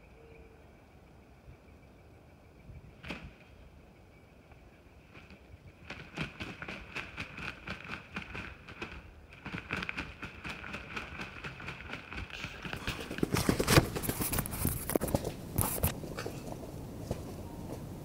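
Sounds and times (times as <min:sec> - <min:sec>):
wings thumping on dry leaves: 0:05.2 - 0:16.4
close rustling and handling noise: 0:06.0 - 0:17.8.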